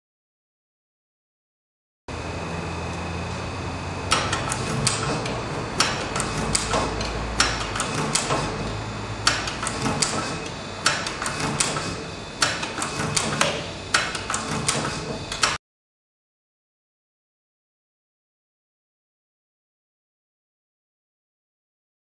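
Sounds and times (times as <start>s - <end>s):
steady machine hum: 2.1s - 15.6s.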